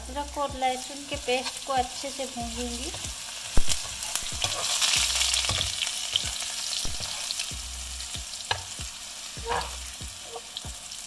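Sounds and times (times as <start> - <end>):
paste sizzling in oil: 0.0 - 11.0
spoon scraping pan: 3.7 - 7.5.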